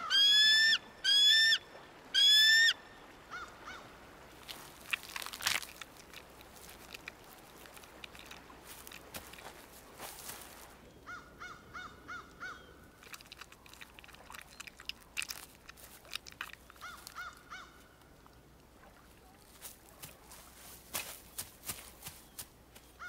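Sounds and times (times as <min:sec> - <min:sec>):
eagle piping calls: 0:00.0 - 0:03.5.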